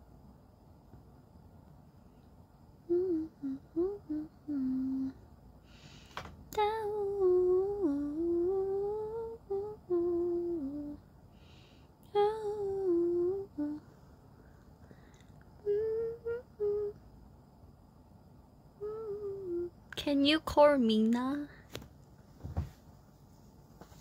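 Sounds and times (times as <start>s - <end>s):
woman humming a slow tune: 2.8s - 5.2s, 6.5s - 11.1s, 12.0s - 13.9s, 15.5s - 17.0s, 18.8s - 20.1s.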